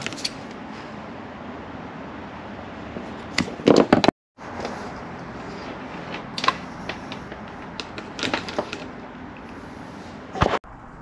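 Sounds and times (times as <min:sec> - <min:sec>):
handling knocks and clicks: 0:03.3 - 0:04.8, 0:05.9 - 0:09.6.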